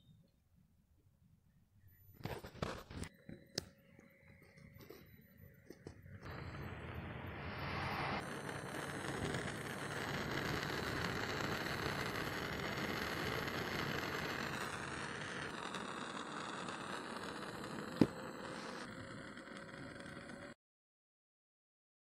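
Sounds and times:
distant road traffic: 5.7 - 12.0.

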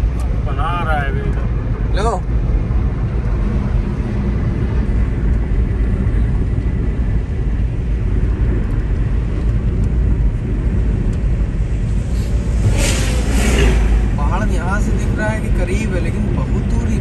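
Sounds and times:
vehicle road noise: 0.0 - 17.0.

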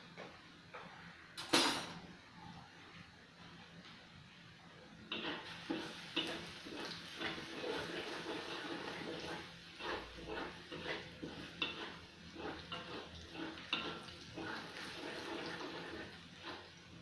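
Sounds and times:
food sizzling in oil: 5.0 - 17.0
metal spatula scraping wok: 5.1 - 16.7.

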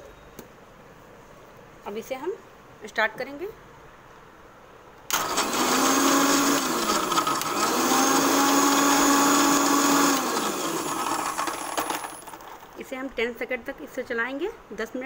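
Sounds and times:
mixer grinder motor whirring: 5.1 - 12.6.

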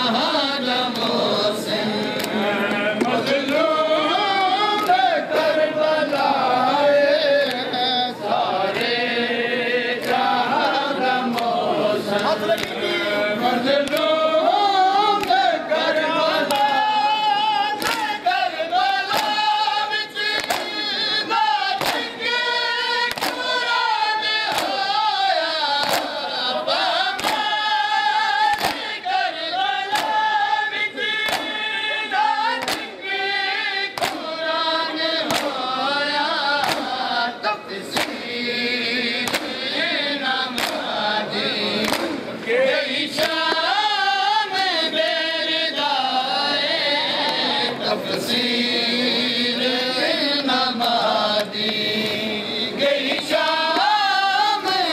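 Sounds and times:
men chanting in chorus: 0.0 - 54.9
hands slapping chests: 2.1 - 3.7, 4.7 - 6.3, 10.0 - 12.8, 13.8 - 14.1, 15.2 - 15.4, 16.3 - 16.8, 17.8 - 18.2, 19.0 - 19.5, 20.2 - 22.4, 23.0 - 25.0, 25.7 - 26.3, 27.0 - 27.6, 28.4 - 29.0, 29.9 - 30.4, 31.2 - 31.7, 32.5 - 33.0, 33.9 - 34.4, 35.2 - 35.7, 36.5 - 38.4, 39.2 - 39.7, 40.5 - 41.0, 41.8 - 42.2, 43.1 - 43.7.

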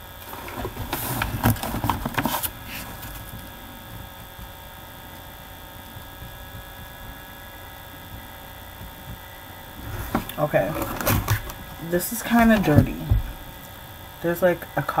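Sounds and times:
steady electrical hum: 0.0 - 15.0
book rustling and knocking: 0.2 - 4.5, 9.8 - 13.4.

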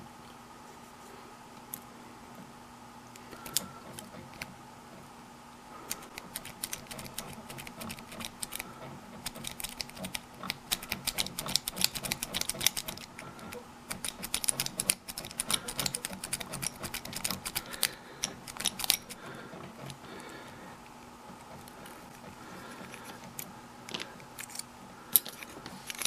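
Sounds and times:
metal strip raking in padlock: 9.2 - 19.2.

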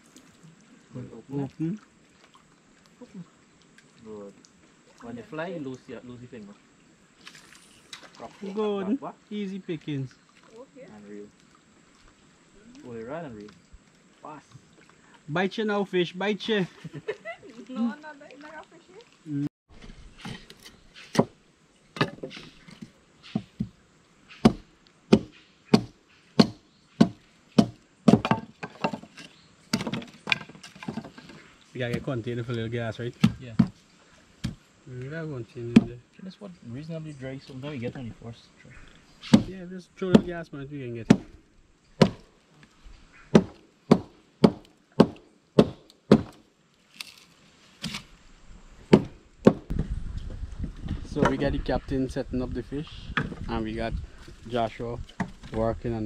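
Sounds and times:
machete chopping wood: 21.0 - 21.4, 24.3 - 29.0, 39.2 - 39.5, 41.1 - 41.4, 42.0 - 42.3, 43.3 - 47.2, 48.9 - 49.7.

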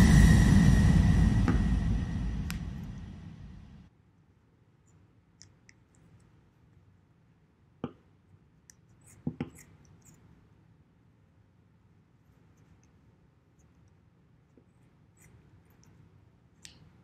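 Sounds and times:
scissors snipping fabric: 8.7 - 10.2.

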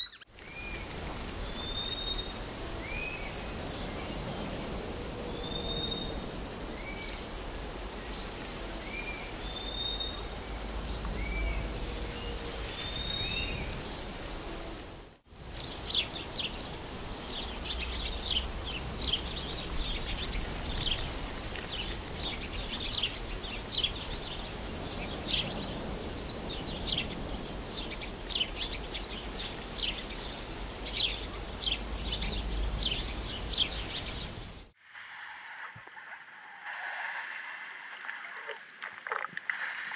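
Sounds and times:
high bird chirps: 0.0 - 0.3
rising bird calls: 0.0 - 3.4
high insect drone: 0.3 - 34.7.

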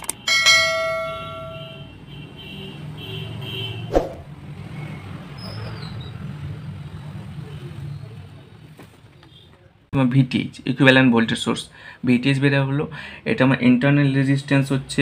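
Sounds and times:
bell-like ding: 0.3 - 1.8.

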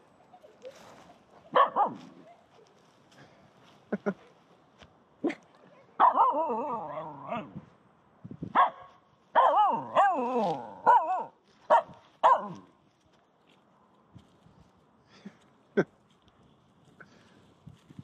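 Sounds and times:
dog barking: 1.5 - 2.2, 6.0 - 7.0, 8.6 - 12.6.

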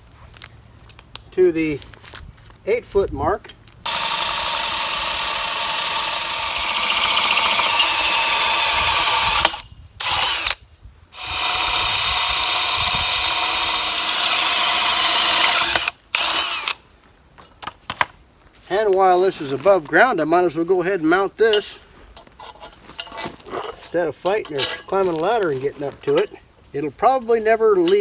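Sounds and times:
cordless drill boring metal: 3.9 - 10.6, 11.2 - 16.8.

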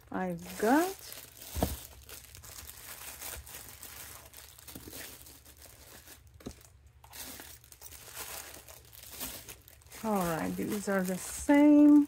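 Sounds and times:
packaging rustling and crinkling: 0.3 - 12.0.

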